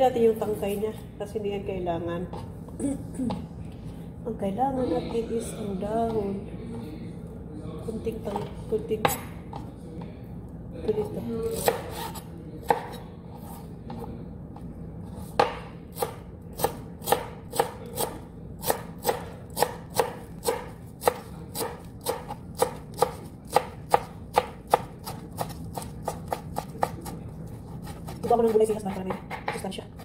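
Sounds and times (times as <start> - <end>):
kitchen knife chopping parsley: 15.3 - 30.0.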